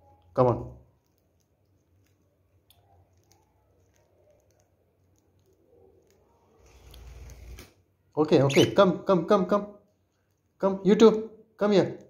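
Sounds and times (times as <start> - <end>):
bird pecking at food: 1.0 - 7.7.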